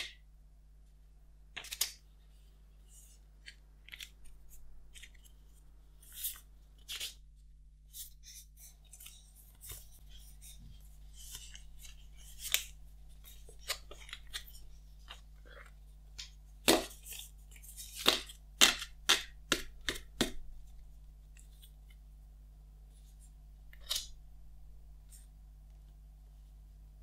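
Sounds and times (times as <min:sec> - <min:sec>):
stiff paper and card rustling: 0:07.9 - 0:20.2.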